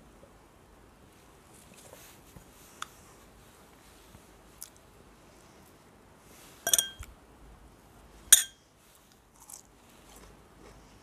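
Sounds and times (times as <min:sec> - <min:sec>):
fork clinking against glass: 0:06.7 - 0:07.1, 0:08.4 - 0:08.6.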